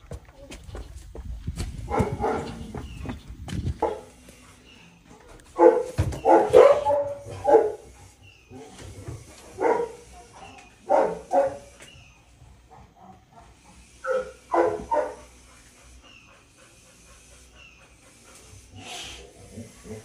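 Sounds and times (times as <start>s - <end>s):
dog barking: 1.9s - 2.6s, 5.6s - 7.9s, 9.6s - 11.7s, 14.0s - 15.3s.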